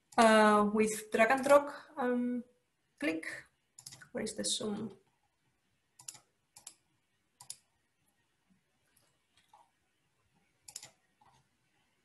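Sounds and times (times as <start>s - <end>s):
computer mouse clicks: 3.7s - 4.2s, 6.0s - 7.7s, 8.9s - 9.8s, 10.4s - 11.5s.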